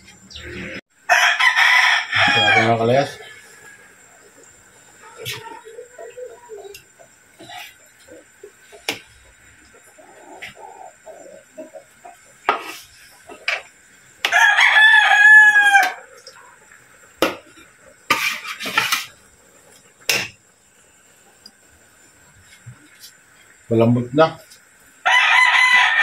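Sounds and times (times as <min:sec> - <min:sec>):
rooster crowing: 0:01.0 - 0:04.4, 0:14.2 - 0:16.2, 0:25.0 - 0:26.0.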